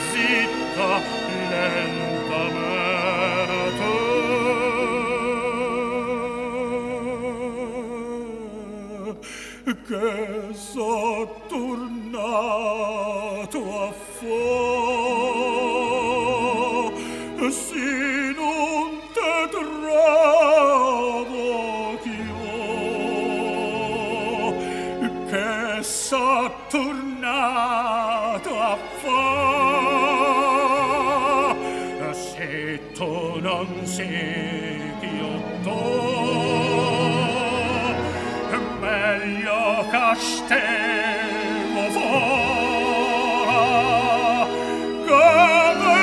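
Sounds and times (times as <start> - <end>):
tenor singing operatically: 0.0 - 46.0
instrumental accompaniment: 10.2 - 46.0.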